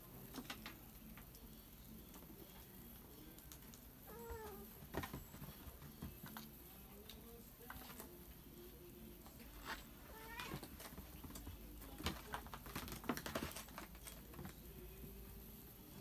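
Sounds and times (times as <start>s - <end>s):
claws scratching and tapping: 9.3s - 14.7s.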